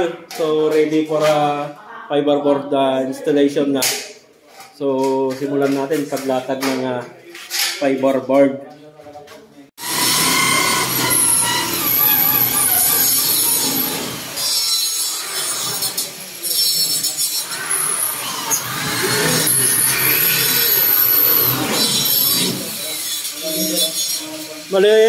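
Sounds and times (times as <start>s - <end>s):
power drill driving screws: 9.8s - 24.6s.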